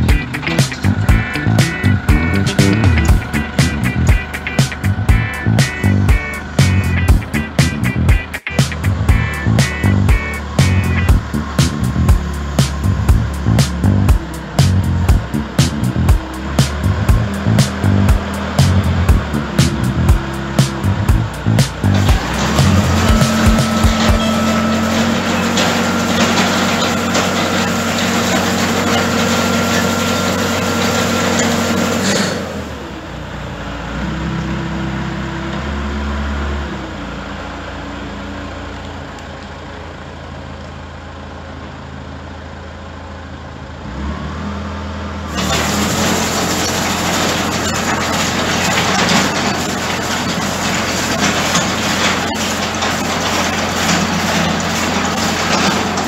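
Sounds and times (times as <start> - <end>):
bale shredder shredding straw: 0.0 - 7.8, 8.7 - 32.8, 45.3 - 56.0
loader engine running: 0.0 - 56.0.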